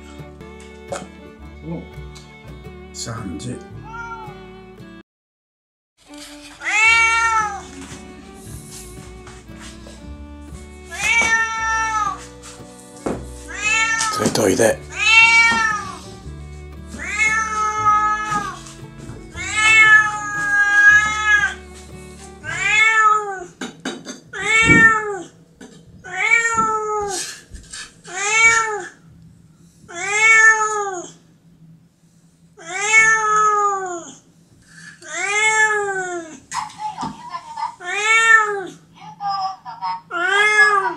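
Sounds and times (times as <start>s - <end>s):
cat meowing: 3.7s - 4.6s, 6.6s - 7.8s, 10.9s - 12.3s, 13.5s - 16.2s, 17.0s - 18.6s, 19.4s - 21.6s, 22.4s - 23.5s, 24.4s - 25.3s, 26.0s - 27.3s, 28.1s - 29.0s, 29.9s - 31.2s, 32.6s - 34.2s, 35.0s - 36.4s, 37.8s - 38.8s, 40.0s - 40.9s.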